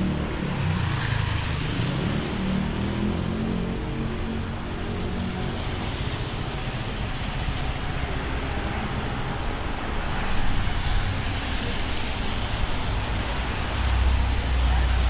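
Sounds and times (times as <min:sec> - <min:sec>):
road traffic on wet street: 0:00.0 - 0:15.0.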